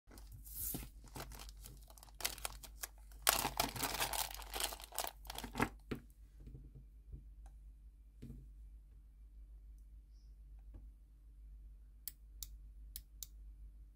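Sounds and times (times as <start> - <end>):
plastic bags crinkling: 0.1 - 5.8.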